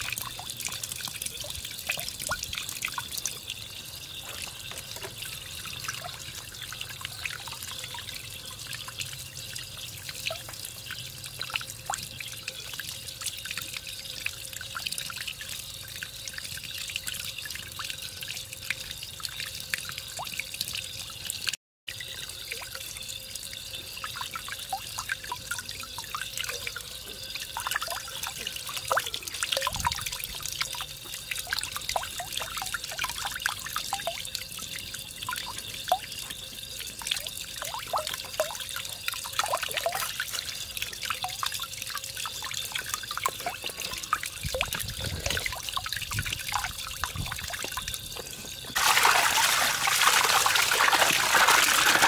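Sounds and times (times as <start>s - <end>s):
water trickling into steel basin: 0.0s - 52.0s
running water splashing: 23.4s - 52.0s.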